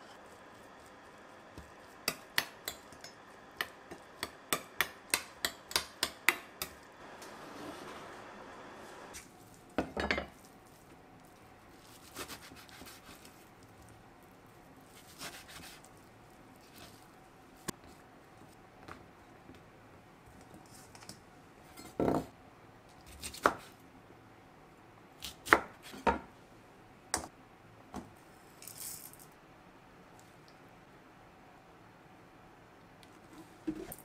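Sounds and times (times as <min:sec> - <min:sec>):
rustle in steel bowl: 0:28.5 - 0:29.3.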